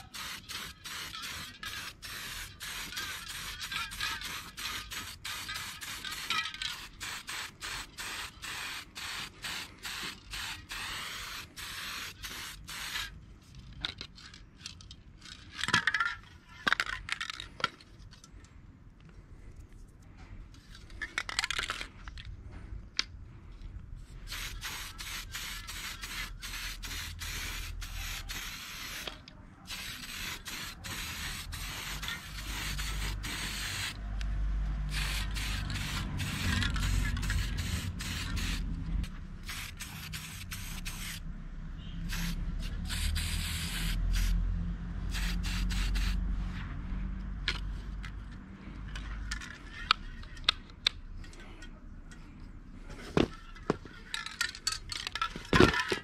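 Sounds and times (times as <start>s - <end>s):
spray paint hissing: 0.0s - 13.1s, 24.2s - 34.0s, 34.8s - 38.7s, 39.4s - 41.2s, 42.0s - 44.4s, 45.0s - 46.3s.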